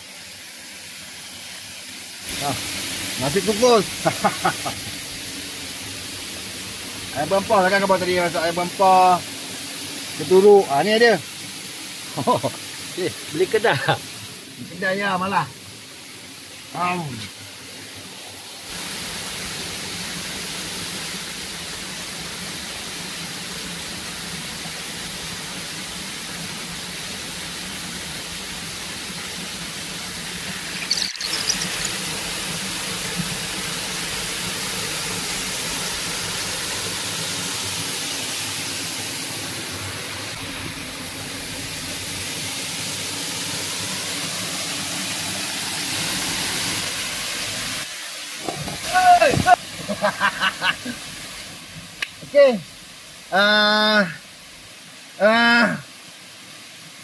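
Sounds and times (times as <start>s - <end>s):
waterfall rushing: 1.8s - 57.0s.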